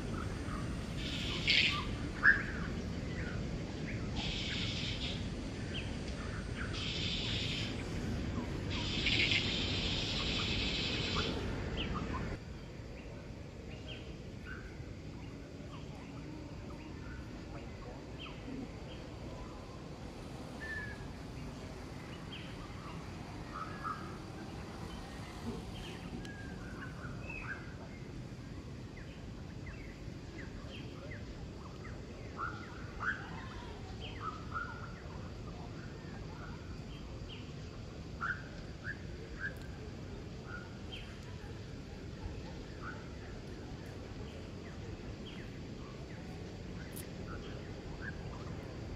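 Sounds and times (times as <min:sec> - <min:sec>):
low background hum: 0:00.0 - 0:48.9
bird chirps and tweets: 0:00.1 - 0:13.1.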